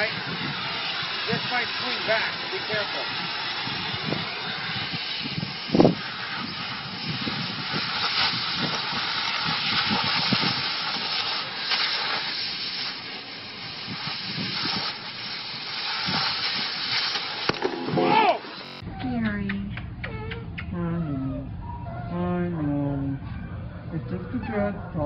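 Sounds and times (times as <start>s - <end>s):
cutting torch hissing: 0.0s - 18.8s.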